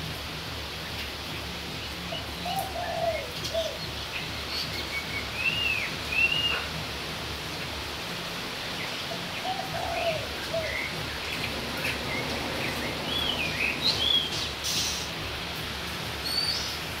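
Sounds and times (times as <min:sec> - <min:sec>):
rain hissing: 0:03.2 - 0:17.0
small birds chirping: 0:08.6 - 0:17.0.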